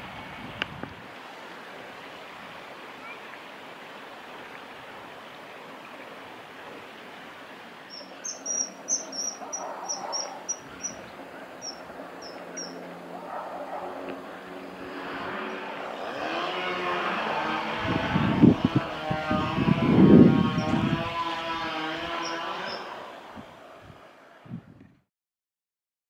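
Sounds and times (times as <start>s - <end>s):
kingfisher calling: 7.8s - 18.1s, 18.7s - 23.1s.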